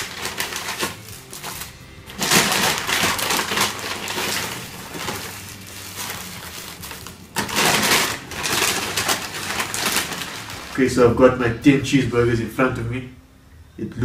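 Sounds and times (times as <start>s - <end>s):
wrapped burgers set on table: 0.0s - 11.0s
paper bag rustling: 0.0s - 11.2s.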